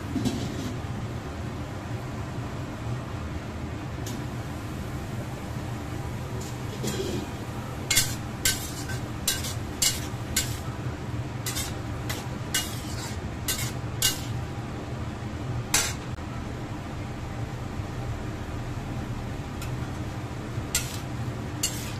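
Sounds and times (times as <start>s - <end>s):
metal spatula scraping wok: 6.4s - 10.6s, 11.4s - 14.4s, 20.8s - 21.9s.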